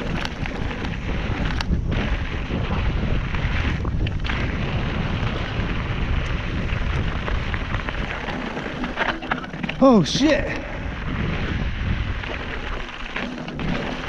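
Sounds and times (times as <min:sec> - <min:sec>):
tyres rumbling over gravel: 0:00.0 - 0:14.0
wind buffeting microphone: 0:00.0 - 0:14.0.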